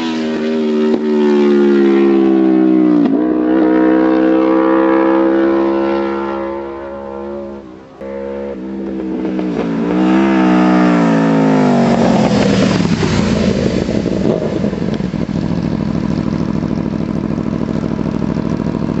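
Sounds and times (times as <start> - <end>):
motorcycle engine revving past: 0.0 - 19.0
motorcycle engine idling: 6.9 - 19.0.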